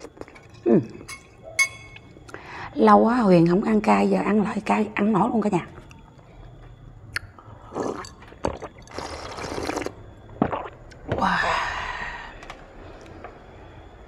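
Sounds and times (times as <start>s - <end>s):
glass clink: 1.0s - 2.1s
person sipping and gulping water: 7.2s - 11.3s
breathy exhale: 11.3s - 13.2s.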